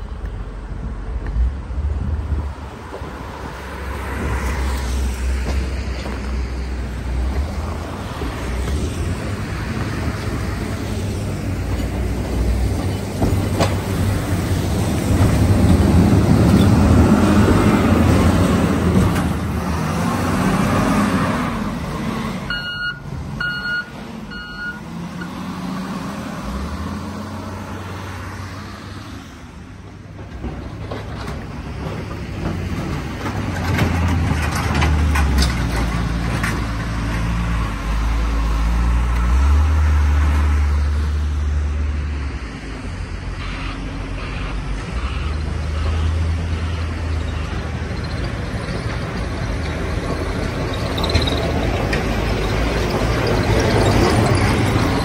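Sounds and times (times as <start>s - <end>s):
diesel engine revving: 5.0s - 29.0s
reversing alarm beeps: 22.5s - 25.3s.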